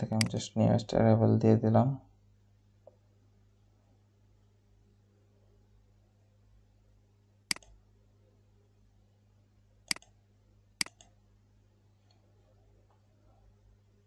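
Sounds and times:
faint low hum: 0.0 - 14.0
computer mouse clicks: 7.5 - 7.8, 9.9 - 10.2, 10.8 - 11.2.

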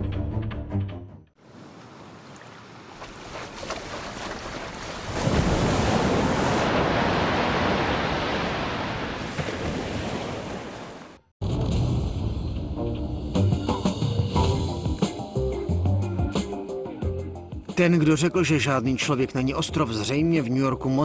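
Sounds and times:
wave breaking: 1.5 - 11.2
ocean surf rushing: 4.8 - 11.3.

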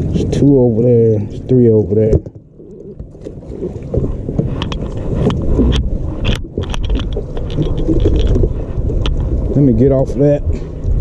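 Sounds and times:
wind on microphone: 2.9 - 11.0.

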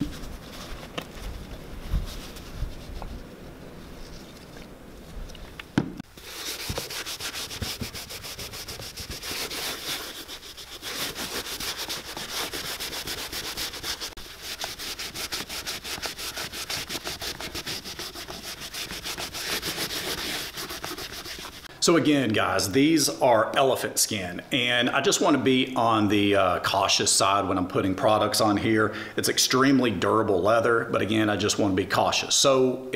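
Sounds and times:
cloth rubbing leather boot: 0.0 - 5.2, 5.8 - 21.7.

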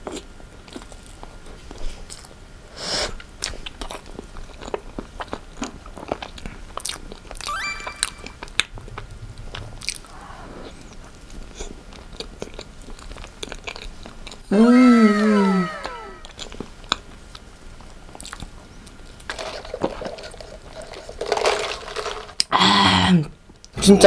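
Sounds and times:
wet chewing and lip smacks: 18.1 - 18.5.

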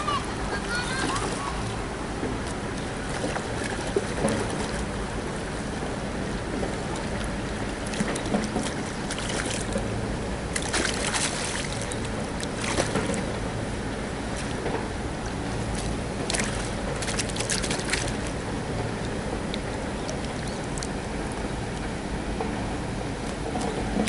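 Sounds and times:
fish splashing in water: 2.4 - 21.4.

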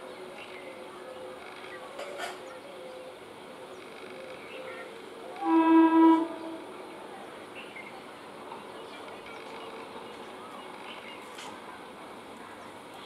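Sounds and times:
train horn blast: 5.4 - 6.8.

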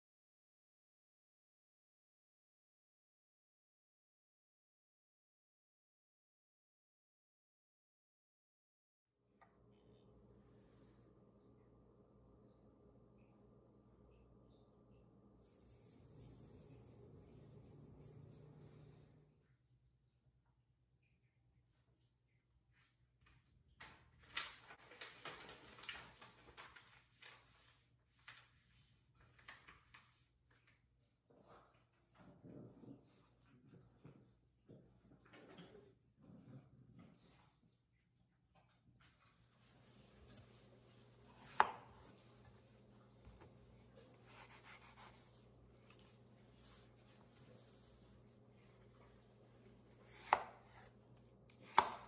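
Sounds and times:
knife cutting apple: 41.1 - 46.7, 49.0 - 52.0.

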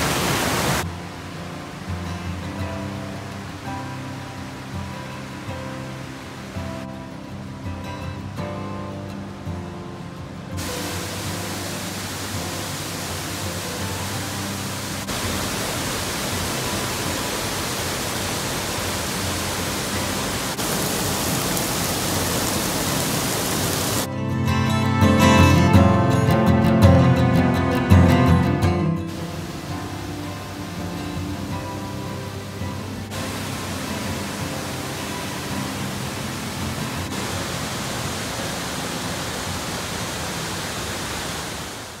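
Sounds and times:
waterfall rushing and splashing: 0.0 - 24.1, 29.0 - 42.0.

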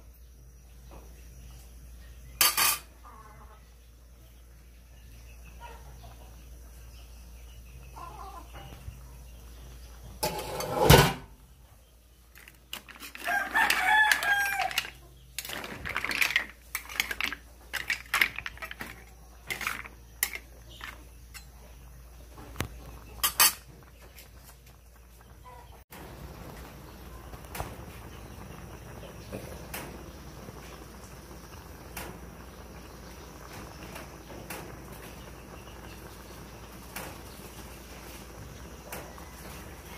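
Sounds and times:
kitchenware clinking and knocking: 2.4 - 2.9, 10.2 - 11.3, 12.4 - 21.6
rooster crowing: 13.1 - 15.0.

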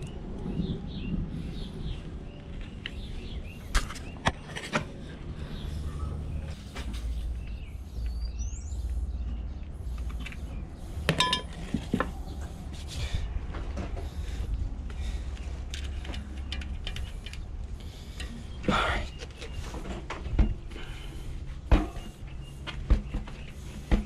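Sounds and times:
bird-like chirp: 5.4 - 11.1
metallic clinks and knocks: 11.1 - 11.6.

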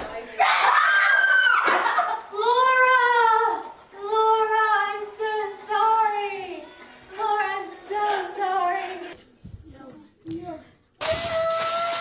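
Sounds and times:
woman screaming in fright: 0.4 - 1.7.

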